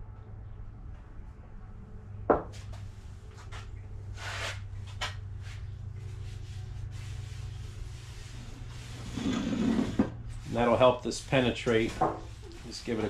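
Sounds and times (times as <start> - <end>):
steady low hum: 0.0 - 13.0
rag rustling in paint tray: 6.0 - 13.0.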